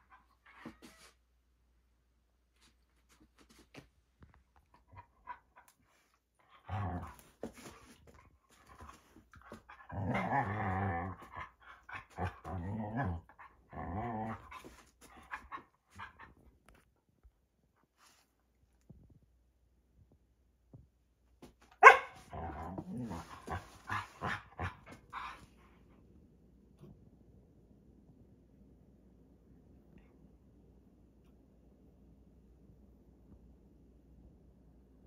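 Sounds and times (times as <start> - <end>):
dog play-growling: 6.4 - 16.3, 22.3 - 25.5.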